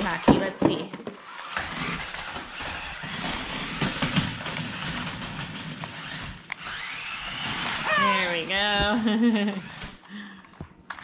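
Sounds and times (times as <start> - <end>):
toy car motors whirring: 1.2 - 8.8, 9.4 - 10.1.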